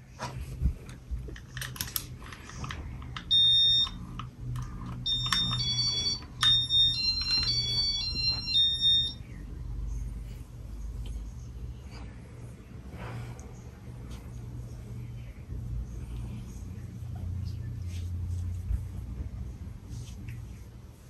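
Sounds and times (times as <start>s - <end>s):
ceiling fan motor hum: 0.0s - 21.0s.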